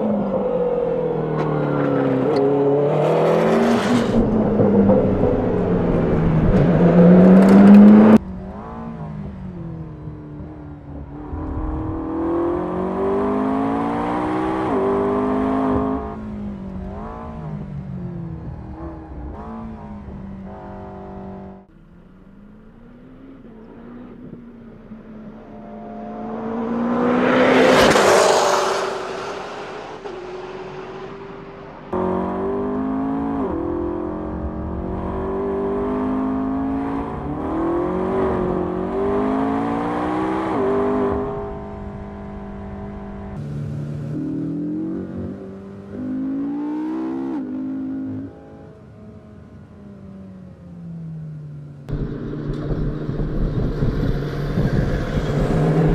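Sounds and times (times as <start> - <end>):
race car engine revving: 0.0 - 48.8
car passing by: 25.4 - 32.0.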